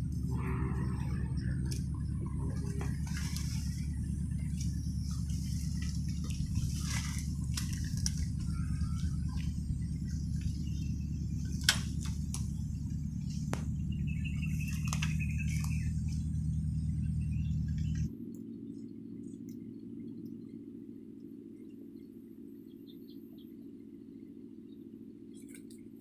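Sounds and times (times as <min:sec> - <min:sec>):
steady low rumble: 0:00.0 - 0:22.6
dry reeds rustling and snapping: 0:01.6 - 0:16.5.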